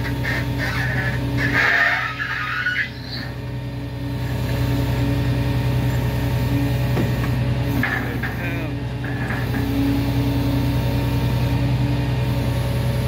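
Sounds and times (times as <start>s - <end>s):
heavy equipment engine throbbing: 0.0s - 13.0s
brief high squeal: 1.5s - 3.3s.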